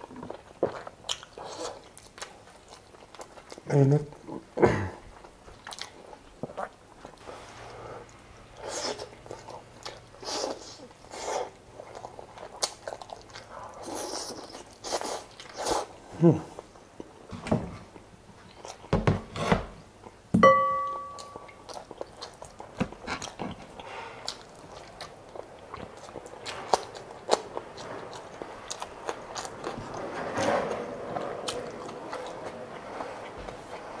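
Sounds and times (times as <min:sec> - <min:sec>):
chewing with wet mouth clicks: 0:00.1 - 0:03.7, 0:05.2 - 0:07.2, 0:08.8 - 0:15.6, 0:21.1 - 0:29.8
short ringing chime: 0:20.4 - 0:21.6.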